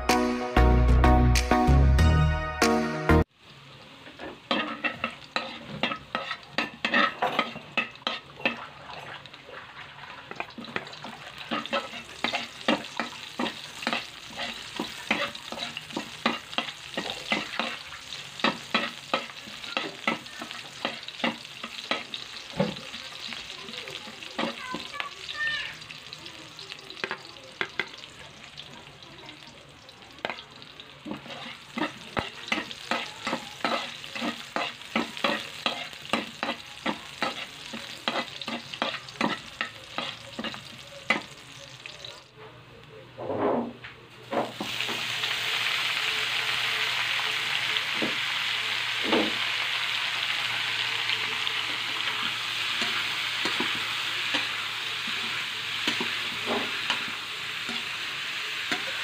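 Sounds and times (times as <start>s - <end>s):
food sizzling in oil: 3.2s - 42.3s, 44.2s - 59.0s
metal spatula scraping a wok: 4.1s - 23.5s, 31.0s - 41.5s.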